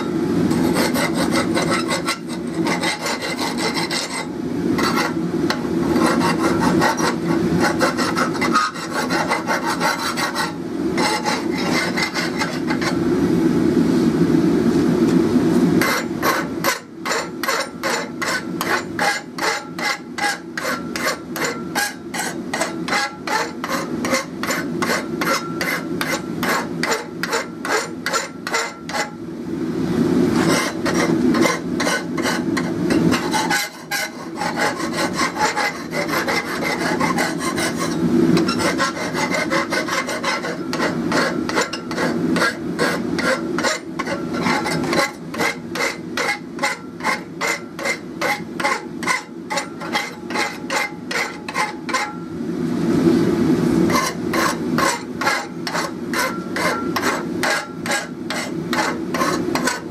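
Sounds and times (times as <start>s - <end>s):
hand file rasping on steel: 0.5s - 5.2s, 5.9s - 13.0s, 15.8s - 29.2s, 30.4s - 52.2s, 53.9s - 59.9s.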